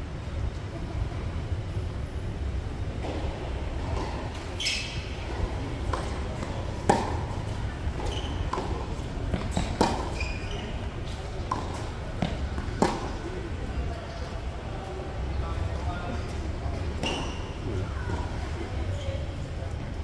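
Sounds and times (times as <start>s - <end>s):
tennis ball hits and bounces: 3.0s - 13.3s.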